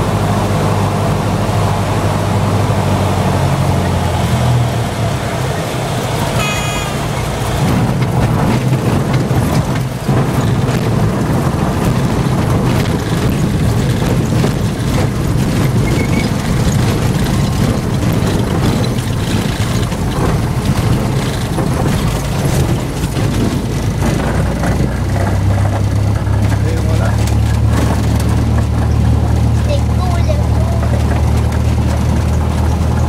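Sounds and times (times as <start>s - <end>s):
airplane engine droning: 0.0s - 25.6s
wheels rumbling over rough turf: 0.0s - 33.0s.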